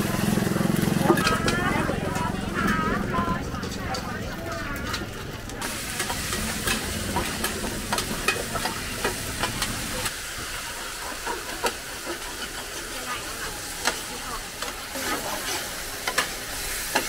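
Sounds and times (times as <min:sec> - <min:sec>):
metal spatulas scraping pan: 0:03.6 - 0:17.0
batter sizzling in oil: 0:04.9 - 0:17.0.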